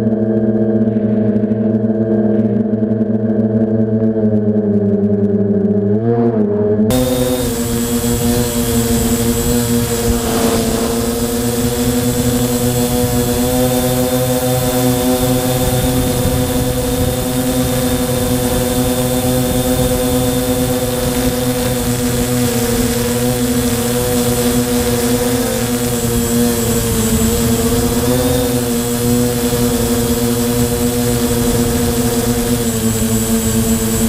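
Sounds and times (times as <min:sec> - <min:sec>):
drone motors buzzing hum: 0:00.0 - 0:34.0
rushing wind: 0:06.9 - 0:22.4.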